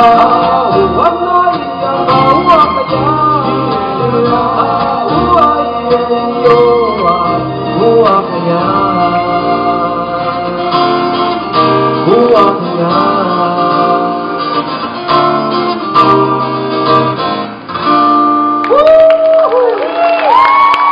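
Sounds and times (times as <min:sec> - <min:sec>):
men singing: 0:00.0 - 0:10.8, 0:12.0 - 0:14.2
double bass: 0:00.0 - 0:18.5
strummed acoustic guitar: 0:00.0 - 0:18.6.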